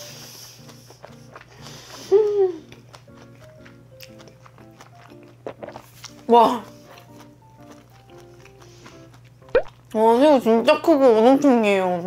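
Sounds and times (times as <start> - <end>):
background music: 0.0 - 11.1
woman humming: 2.1 - 2.8.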